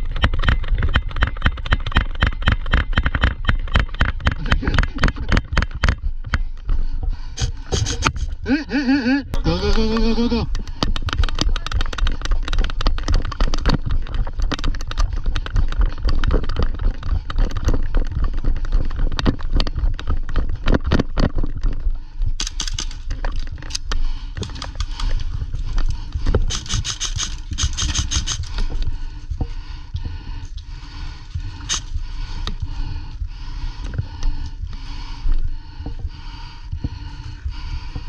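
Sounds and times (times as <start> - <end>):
gear knocking and rattling: 0.0 - 6.8, 9.9 - 33.2.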